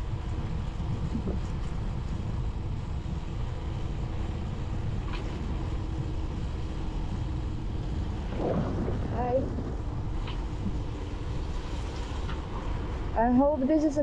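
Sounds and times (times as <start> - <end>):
wind rumble on microphone: 0.0 - 14.0.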